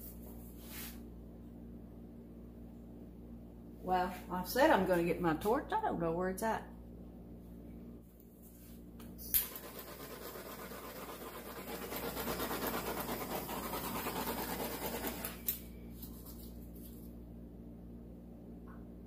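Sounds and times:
torch flame hissing: 9.4s - 15.5s.

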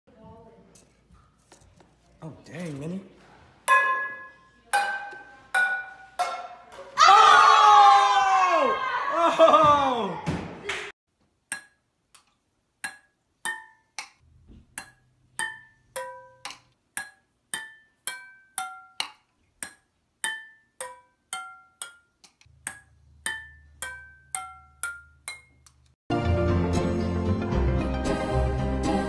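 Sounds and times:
full music track: 26.1s - 29.0s.

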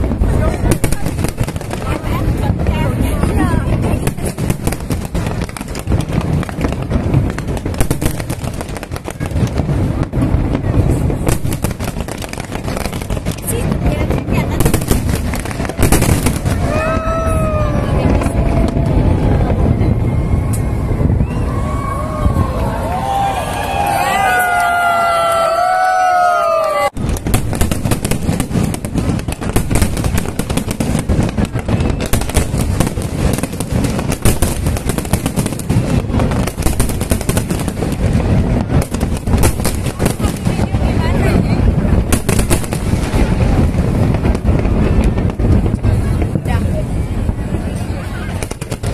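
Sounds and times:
fireworks bangs and crackling: 0.0s - 48.9s
low fireworks booms: 0.0s - 48.9s
low rumble: 15.2s - 23.8s.

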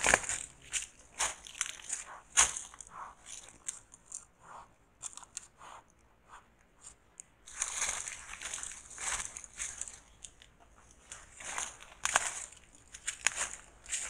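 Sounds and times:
animal crunching fruit: 0.0s - 4.3s.

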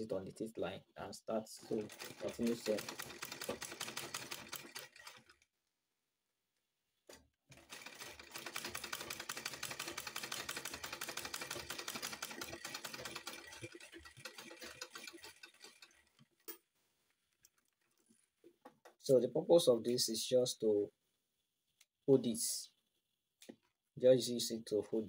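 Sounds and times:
sewing machine stitching: 1.6s - 5.5s, 7.5s - 16.6s.

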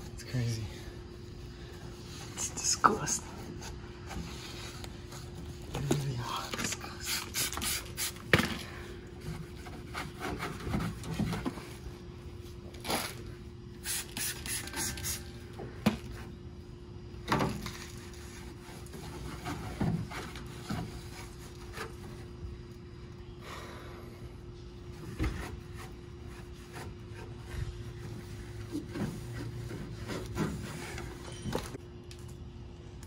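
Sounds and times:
spray bottle squirts: 13.8s - 15.2s.

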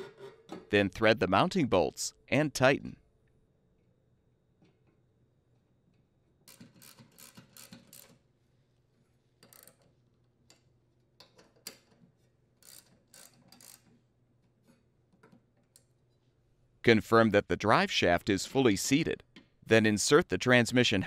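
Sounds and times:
socket ratchet clicking: 6.5s - 8.2s, 12.6s - 13.9s.

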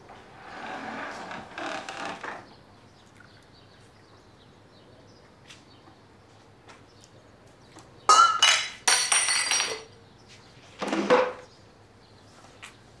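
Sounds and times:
crockery and glassware clinking: 8.1s - 9.9s.

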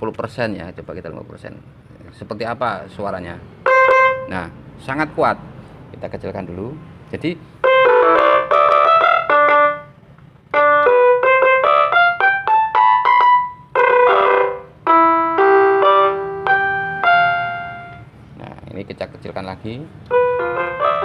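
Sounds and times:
electronic keyboard playing: 3.6s - 4.6s, 7.6s - 18.2s, 20.0s - 21.0s.

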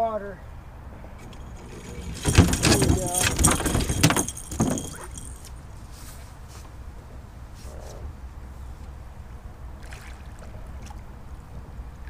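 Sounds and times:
fish thrashing and splashing: 1.2s - 5.4s.

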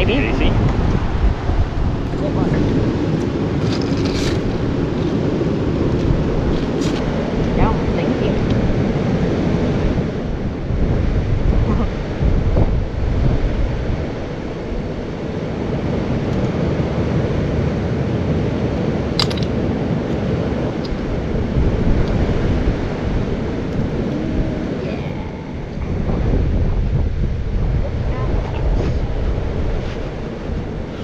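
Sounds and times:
wind buffeting microphone: 0.0s - 31.0s
sharp click: 19.2s - 19.5s.

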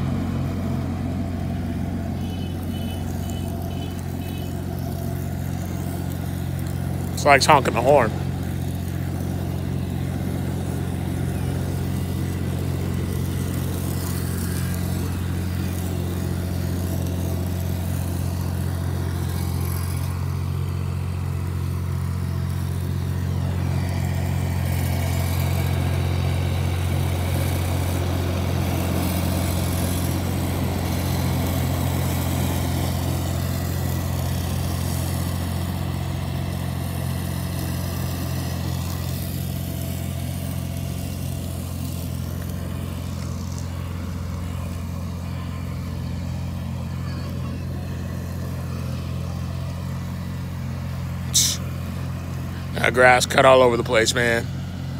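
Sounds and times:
tractor engine mowing grass: 0.0s - 54.9s.

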